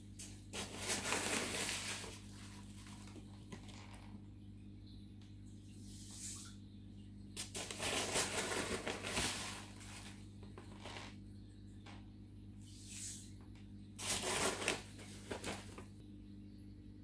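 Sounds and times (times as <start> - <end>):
low hum: 15.0 - 17.0.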